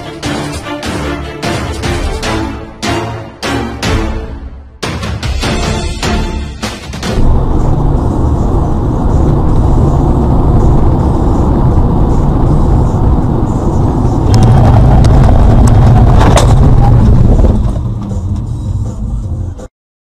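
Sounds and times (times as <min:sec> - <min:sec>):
strong bang: 0:06.9 - 0:18.8
vehicle low rumble: 0:07.2 - 0:19.7.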